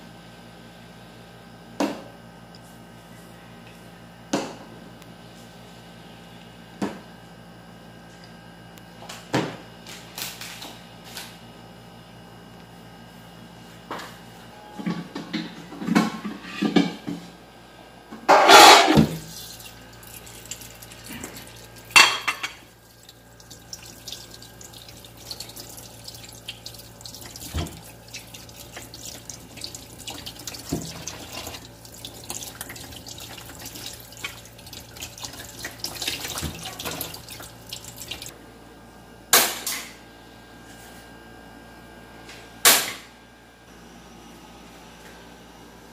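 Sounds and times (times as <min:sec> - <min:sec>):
tap water running: 0:18.7 - 0:38.3
water splashing: 0:19.0 - 0:38.3.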